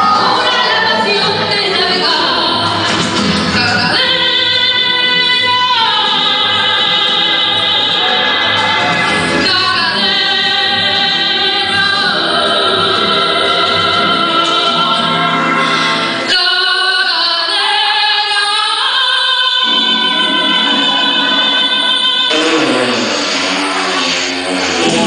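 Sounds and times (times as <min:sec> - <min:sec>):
operatic singing with music: 0:00.0 - 0:25.0.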